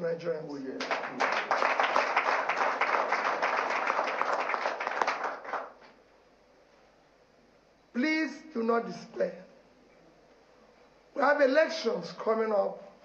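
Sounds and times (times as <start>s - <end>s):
audience applauding: 0.8s - 5.9s.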